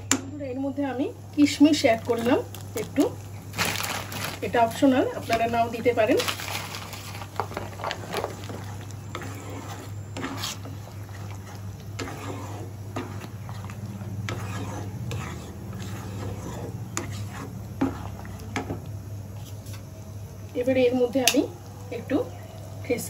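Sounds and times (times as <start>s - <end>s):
steady low hum: 0.0s - 23.0s
spatula scraping pan: 5.2s - 19.7s.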